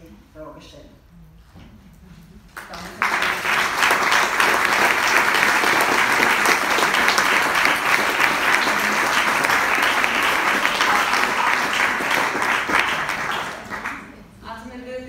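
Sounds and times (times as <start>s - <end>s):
audience applauding: 2.5s - 14.2s.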